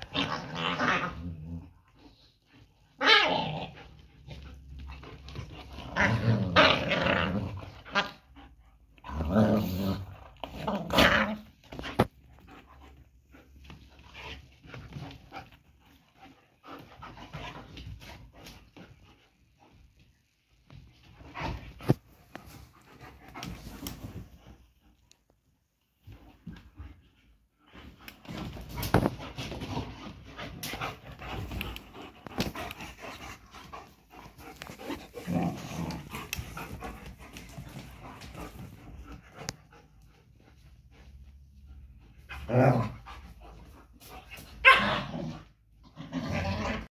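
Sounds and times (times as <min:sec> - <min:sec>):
dogs growling: 0:00.0 - 0:19.0, 0:27.7 - 0:40.2, 0:41.8 - 0:46.9
dogs scuffling: 0:27.7 - 0:44.8.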